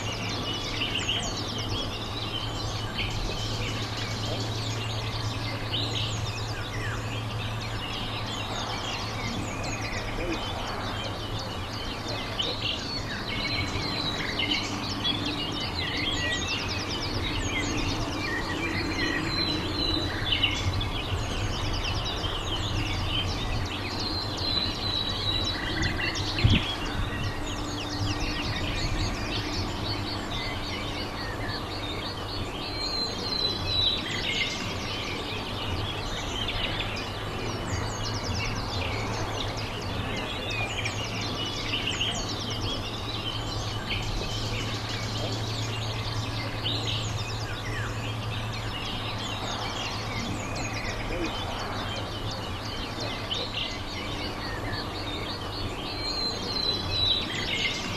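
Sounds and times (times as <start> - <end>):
low outdoor hum: 0.0 - 57.9
small birds chirping: 0.0 - 57.9.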